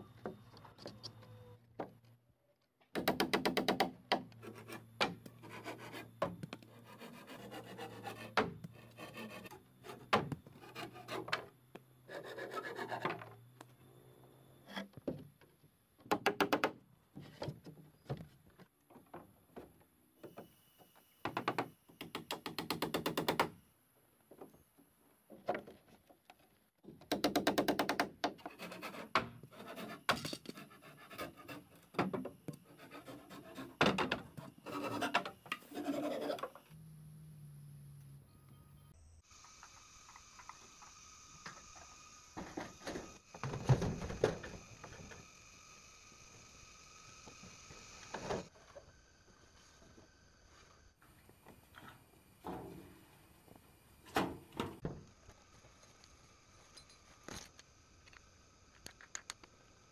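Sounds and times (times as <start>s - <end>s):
wood scraping against wood: 28.4s - 36.7s.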